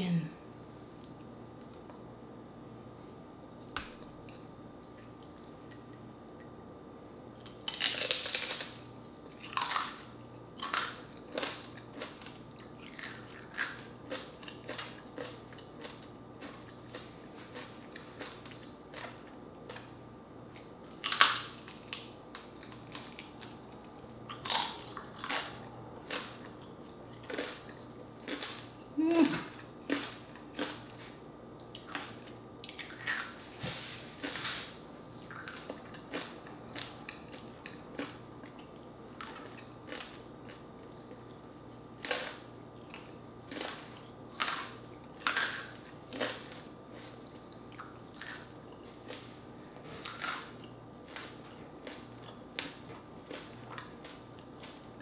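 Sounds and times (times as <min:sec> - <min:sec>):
quiet chewing: 0:03.5 - 0:06.6, 0:10.6 - 0:19.9, 0:21.6 - 0:55.0
crunching crispy food: 0:07.4 - 0:19.9, 0:20.6 - 0:26.6, 0:27.2 - 0:31.1, 0:39.1 - 0:41.4, 0:42.0 - 0:49.3, 0:50.0 - 0:55.0.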